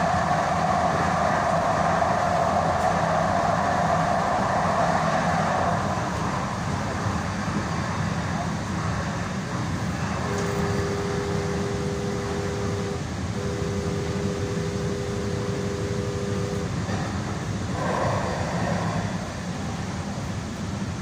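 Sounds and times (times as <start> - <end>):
train wheels rumbling on track: 0.0 - 21.0
train horn blasts: 10.2 - 16.9.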